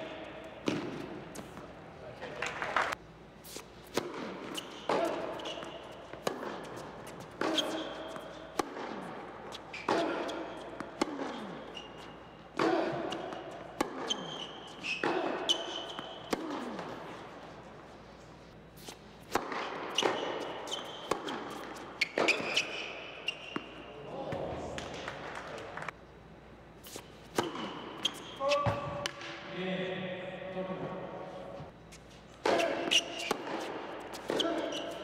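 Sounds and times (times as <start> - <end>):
sneakers squeaking on court: 3.9 - 12.4, 13.0 - 17.0, 18.8 - 23.9, 26.8 - 29.0, 31.8 - 35.0.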